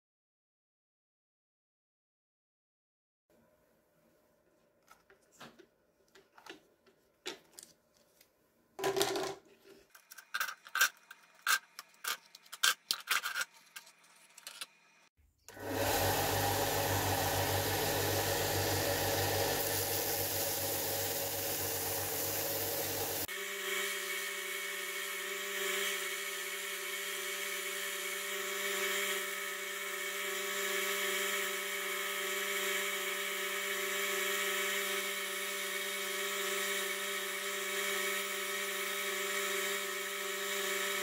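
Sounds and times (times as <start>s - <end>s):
belt sander whirring: 15.5s - 41.0s.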